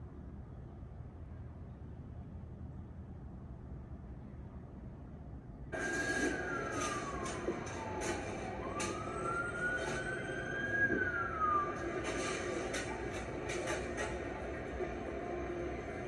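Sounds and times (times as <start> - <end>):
street noise: 0.2 - 16.0
fire engine siren wailing: 5.8 - 14.2.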